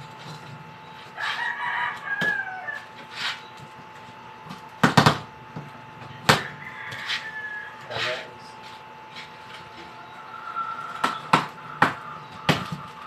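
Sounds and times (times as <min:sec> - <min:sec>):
rooster crowing: 0:01.1 - 0:03.0, 0:06.2 - 0:08.4, 0:09.7 - 0:13.0.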